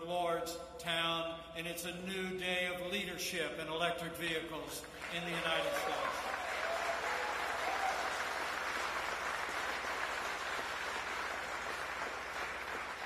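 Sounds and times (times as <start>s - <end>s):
crowd applauding: 4.8s - 13.0s.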